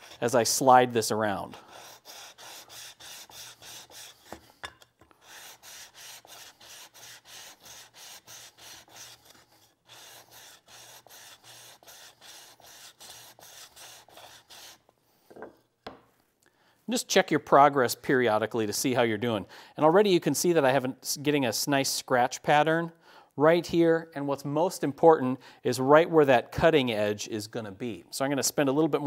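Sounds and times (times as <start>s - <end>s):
blade scrubbing on sharpening stone: 0.0s - 0.3s, 1.6s - 14.8s.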